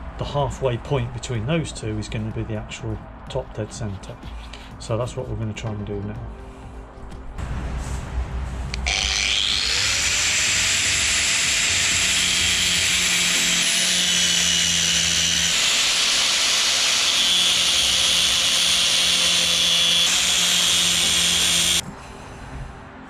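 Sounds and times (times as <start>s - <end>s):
angle grinder grinding metal: 8.7s - 21.8s.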